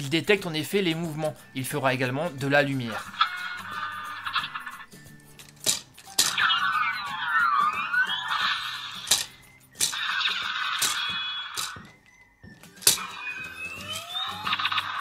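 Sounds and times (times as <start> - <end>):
synthesized toy sound effects: 2.6 - 12.1, 12.7 - 15.0.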